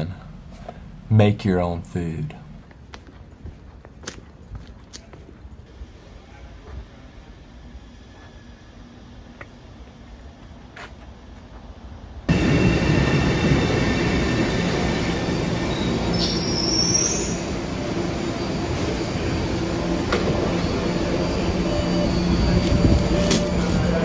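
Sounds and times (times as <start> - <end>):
subway train noise: 0.0 - 24.0
high squeal rising in pitch: 12.3 - 24.0.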